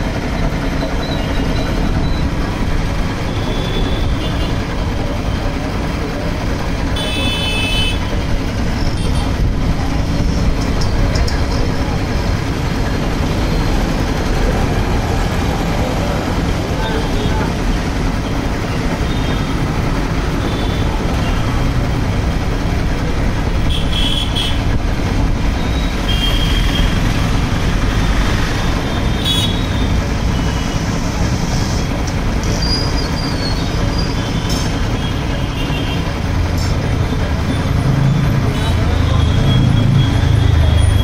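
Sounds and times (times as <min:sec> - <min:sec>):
air compressor running: 0:11.6 - 0:37.6.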